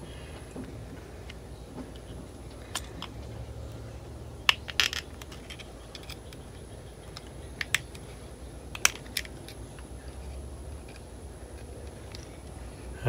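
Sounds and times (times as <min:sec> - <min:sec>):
metal pick clicking and scraping: 0:04.5 - 0:12.6.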